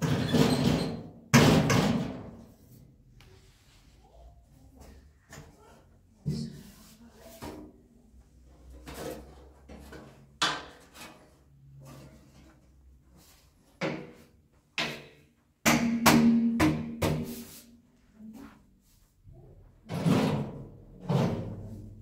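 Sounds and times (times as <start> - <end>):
objects knocking and clattering: 0.0 - 2.5.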